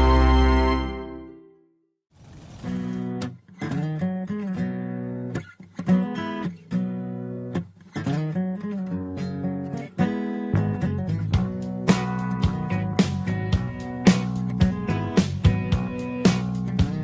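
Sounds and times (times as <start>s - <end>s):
strummed guitar chords: 6.8s - 17.0s.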